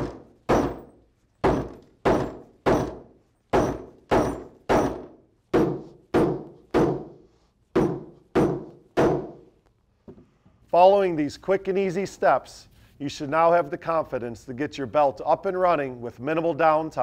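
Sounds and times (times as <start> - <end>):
hammer striking metal: 0.0 - 7.2, 7.8 - 9.4.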